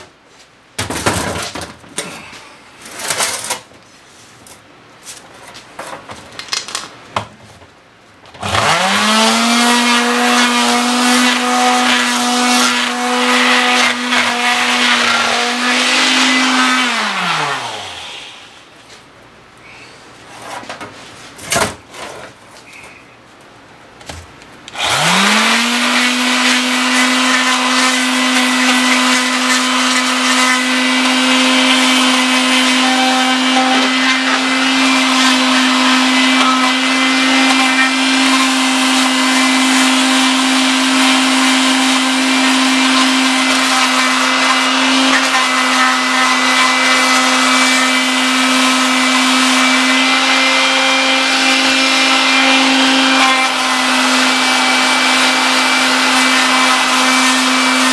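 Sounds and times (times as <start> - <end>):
electric grinder whining on metal: 8.4 - 18.5, 24.8 - 57.9.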